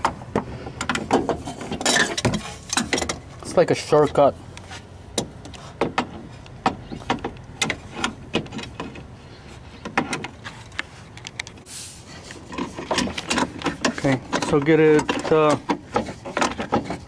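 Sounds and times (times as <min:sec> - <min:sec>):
scraping hiss: 0:11.6 - 0:12.5.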